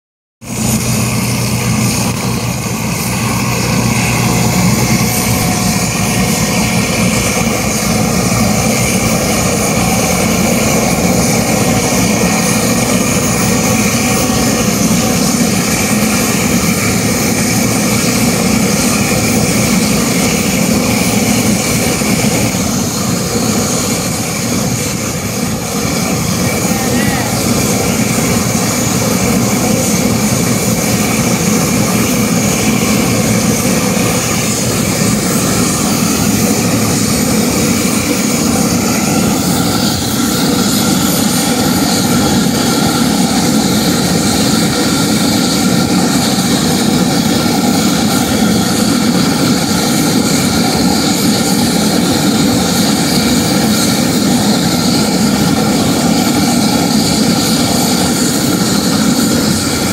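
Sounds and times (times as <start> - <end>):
aircraft turbine engines whining: 0.4 - 59.9.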